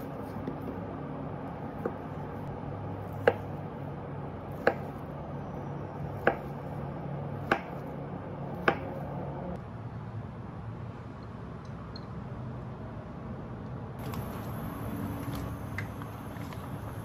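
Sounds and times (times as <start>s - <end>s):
knife striking wooden chopping board: 3.2s - 3.6s, 4.6s - 5.0s, 6.2s - 6.5s, 7.4s - 7.8s, 8.6s - 9.0s.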